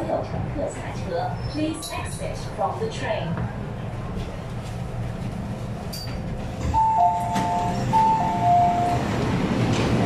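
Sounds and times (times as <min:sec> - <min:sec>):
low hum of train and station: 0:00.0 - 0:10.0
two-tone door chime: 0:06.8 - 0:09.0.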